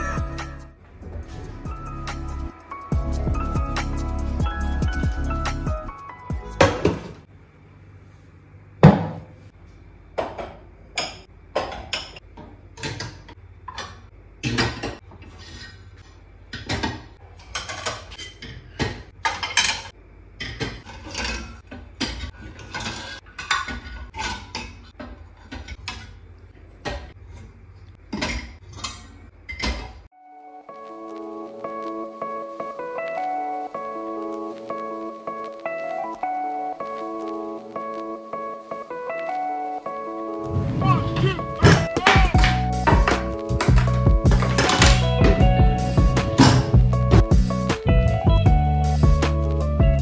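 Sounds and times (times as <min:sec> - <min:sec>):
dishes and cutlery clinking: 0:16.6 - 0:24.8.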